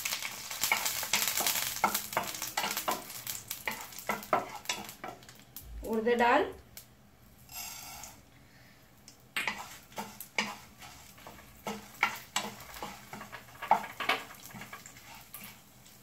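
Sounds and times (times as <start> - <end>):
spatula scraping frying pan: 0.0 - 5.3, 7.5 - 8.2, 9.4 - 16.0.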